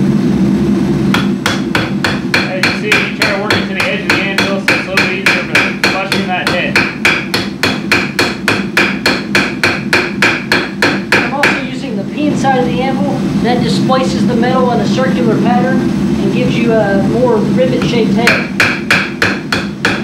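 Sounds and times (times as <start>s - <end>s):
hammer striking rivet on anvil: 1.2s - 11.6s, 18.3s - 20.0s.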